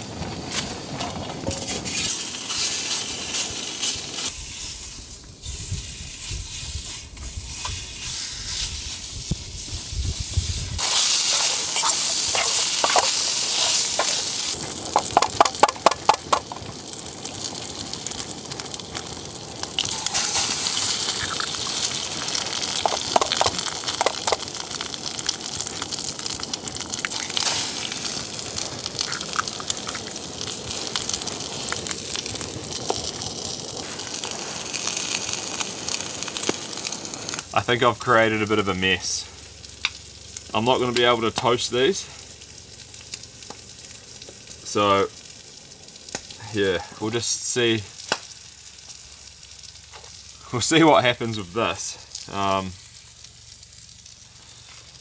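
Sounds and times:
bacon and eggs sizzling in a pan: 0.0 - 55.0.

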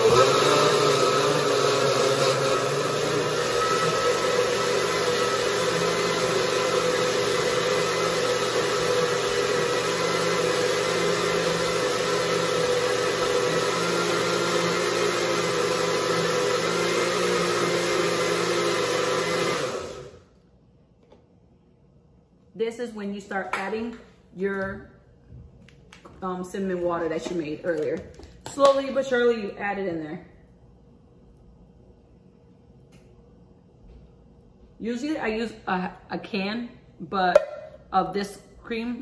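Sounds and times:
blender running: 0.0 - 20.3.

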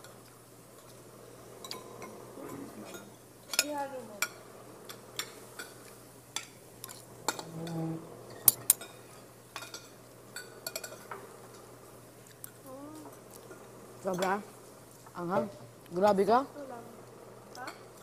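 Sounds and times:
cutlery clinking against dishes: 1.6 - 11.3.

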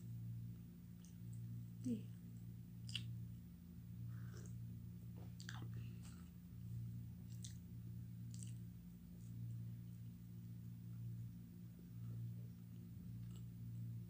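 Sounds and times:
steady low hum: 0.0 - 14.0
soft chewing: 0.6 - 14.0.

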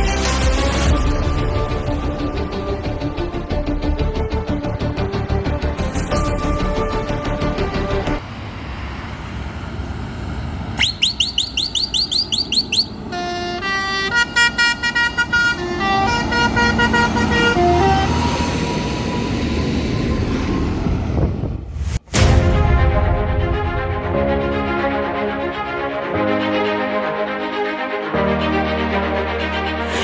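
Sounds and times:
musical air horn: 10.8 - 18.5.

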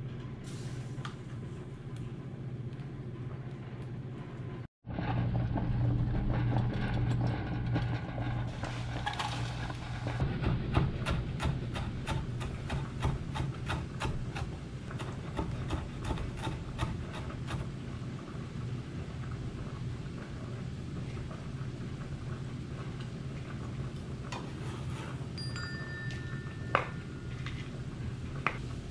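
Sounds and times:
leaves rubbing and scraping: 8.4 - 10.2
knife chopping on wooden board: 10.2 - 17.7.

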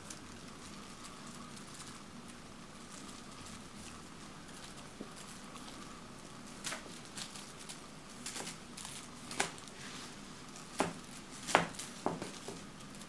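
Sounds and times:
cat paws tapping on wooden floor: 6.6 - 9.8, 10.6 - 13.0.

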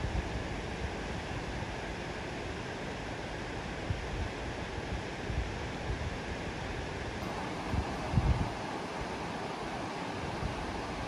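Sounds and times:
wind buffeting microphone: 3.8 - 9.2.

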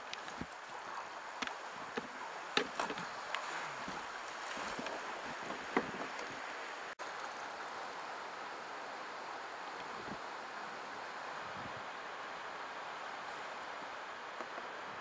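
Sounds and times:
rushing whitewater: 0.0 - 15.0
paddle knocks and splashes: 1.4 - 6.4.

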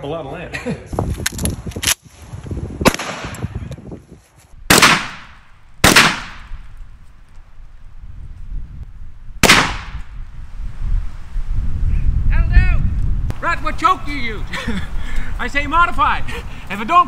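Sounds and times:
shotgun shots with echo: 2.8 - 3.4, 4.7 - 6.6, 9.4 - 10.1
sharp crack: 2.8 - 3.5, 4.7 - 6.7, 9.4 - 10.2.

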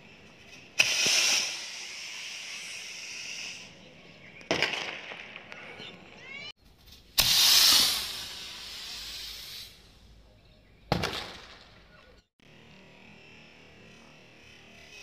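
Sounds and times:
rocket firecracker whoosh and hiss: 0.8 - 3.8, 7.2 - 10.0
sharp firework burst: 0.8 - 3.8, 7.2 - 9.9.

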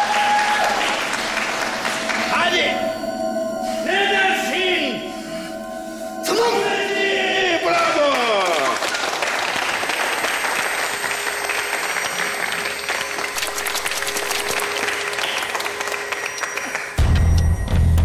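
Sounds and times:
crowd applauding: 0.0 - 3.0, 7.5 - 17.8.

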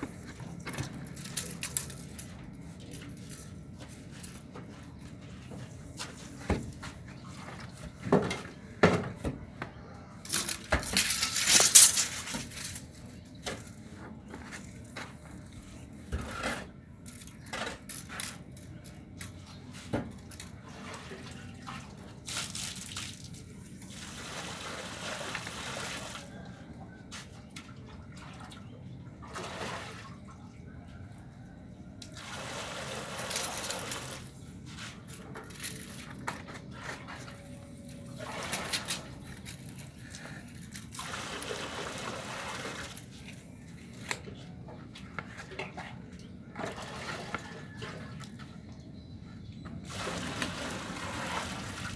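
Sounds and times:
water sloshing and pouring: 19.4 - 26.6, 27.3 - 30.6, 32.1 - 34.4, 40.6 - 43.4, 44.9 - 48.9, 49.8 - 51.9.

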